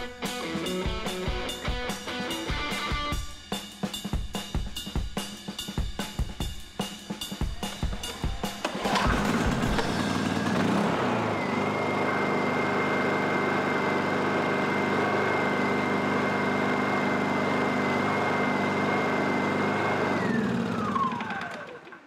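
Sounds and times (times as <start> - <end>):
generator engine running with whine: 8.7 - 22.0.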